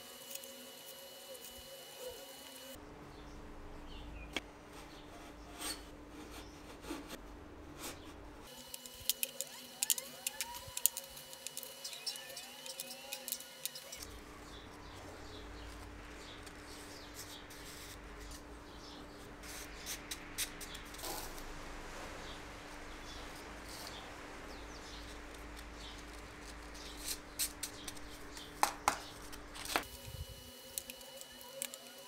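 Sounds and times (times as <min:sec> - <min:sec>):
small metallic clicks and scrapes: 0:08.5 - 0:14.1.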